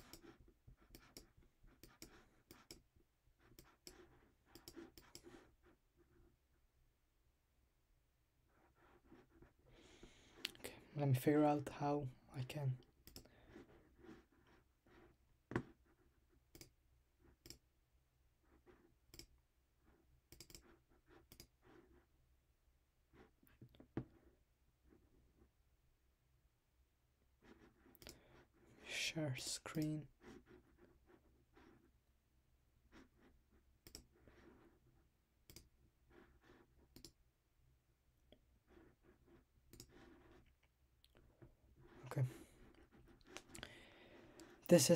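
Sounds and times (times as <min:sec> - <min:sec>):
computer mouse clicks: 0:00.0 - 0:00.3, 0:00.9 - 0:02.9, 0:03.5 - 0:05.4, 0:13.0 - 0:13.3, 0:16.5 - 0:16.8, 0:17.4 - 0:17.6, 0:19.1 - 0:19.4, 0:20.3 - 0:21.6, 0:28.0 - 0:28.2, 0:33.8 - 0:34.2, 0:35.4 - 0:35.7, 0:36.9 - 0:37.2, 0:39.7 - 0:40.1.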